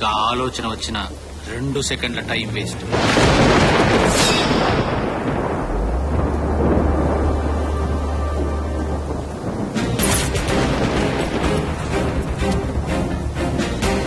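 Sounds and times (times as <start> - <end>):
heavy rain pouring: 0.0 - 14.0
low steady drone: 0.0 - 14.0
thunder rumbling: 0.0 - 14.0
sharp crack: 2.9 - 7.0, 9.5 - 12.8.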